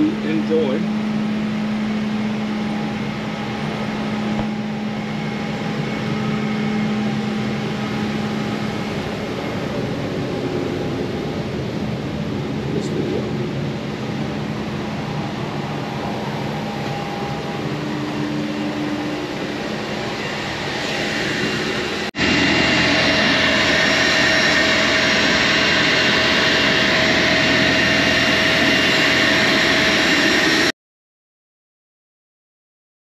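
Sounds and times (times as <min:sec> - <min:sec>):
jet turbine whine and rush: 0:00.0 - 0:30.8.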